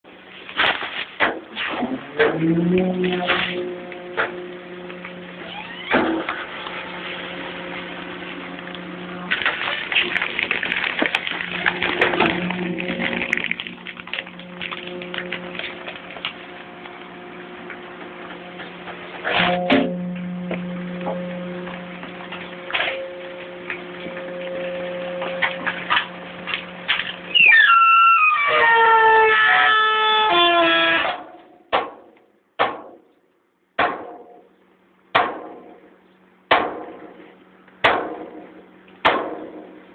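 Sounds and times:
compactor humming: 0:01.8 - 0:30.4
metal parts squealing: 0:05.4 - 0:07.2, 0:27.0 - 0:31.2
sharp knocks: 0:31.7 - 0:33.1, 0:33.8 - 0:34.4, 0:35.2 - 0:35.8, 0:37.8 - 0:39.7.

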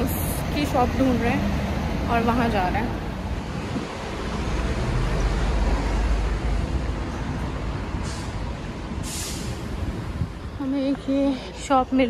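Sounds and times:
road traffic hum: 0:00.0 - 0:12.0
vehicle engine rumbling: 0:00.0 - 0:12.0
short hisses: 0:09.0 - 0:09.6.

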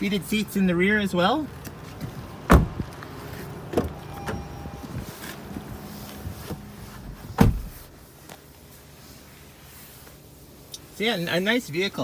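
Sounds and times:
car door opening: 0:02.0 - 0:08.5
car door shutting with thud: 0:02.5 - 0:02.8, 0:07.3 - 0:07.9.

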